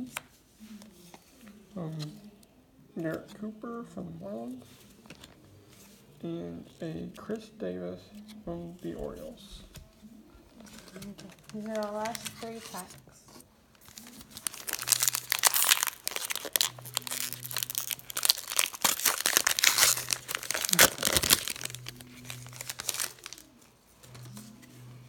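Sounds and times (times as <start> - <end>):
wrapper tearing and crinkling: 10.6 - 12.9, 13.8 - 24.3.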